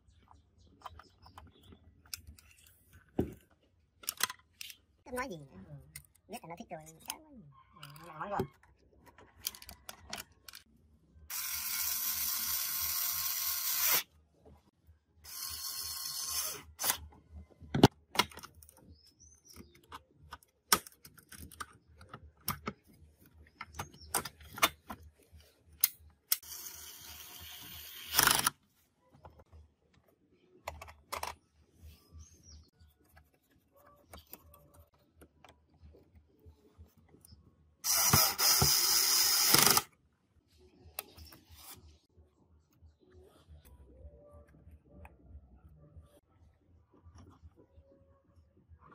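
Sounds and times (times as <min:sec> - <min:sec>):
cordless drill driving screws: 0:37.9 - 0:39.9.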